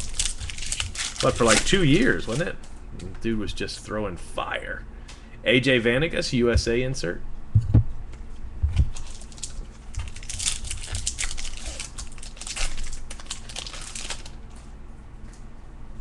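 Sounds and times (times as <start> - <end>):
wrapper crinkling and tearing: 0.0 - 2.5, 8.9 - 14.6.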